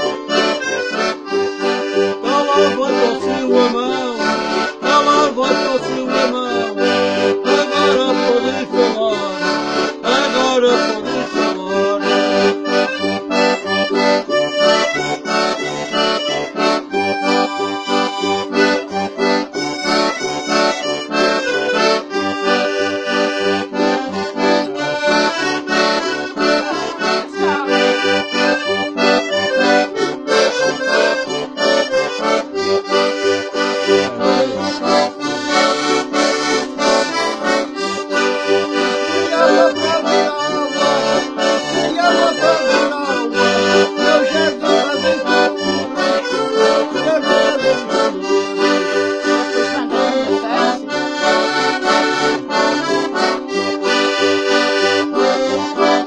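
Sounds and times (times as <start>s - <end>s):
button accordion playing: 0.0s - 56.0s.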